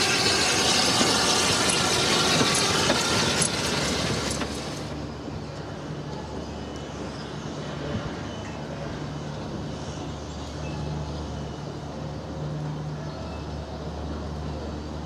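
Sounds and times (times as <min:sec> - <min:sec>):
low engine hum: 0:00.0 - 0:07.0.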